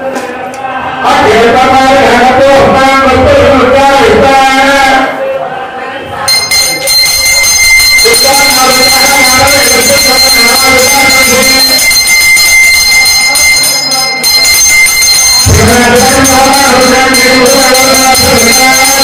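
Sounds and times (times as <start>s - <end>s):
voices chanting together: 4.9s - 6.9s
hand bell ringing: 6.3s - 19.0s.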